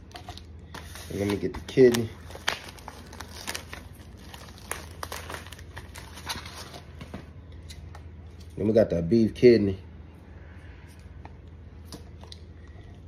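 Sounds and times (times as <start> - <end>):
plastic wrap crinkling: 0.0 - 7.0.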